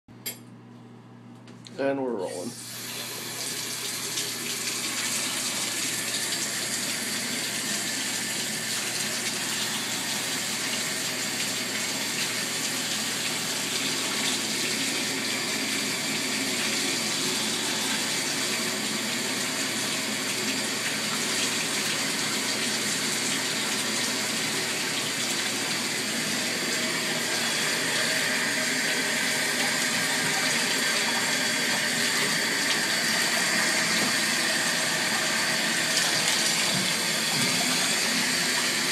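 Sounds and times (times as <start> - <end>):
shower head spraying water: 2.5 - 38.9
tap running into bathtub: 28.7 - 38.9.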